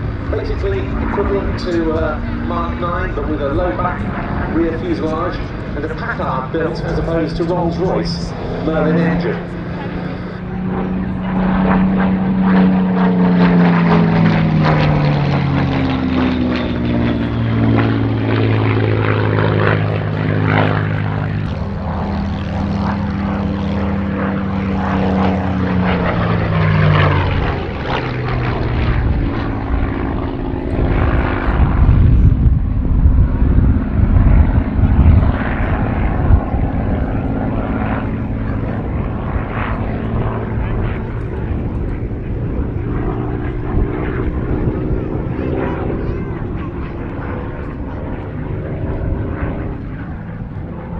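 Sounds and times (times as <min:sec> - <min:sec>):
propeller plane engine droning: 0:00.0 - 0:50.9.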